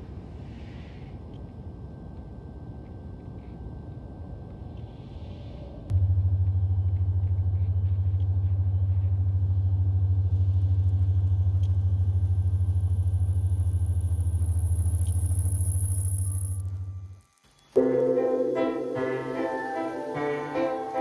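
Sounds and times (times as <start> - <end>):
deep low hum with flutter: 0.9 - 17.4.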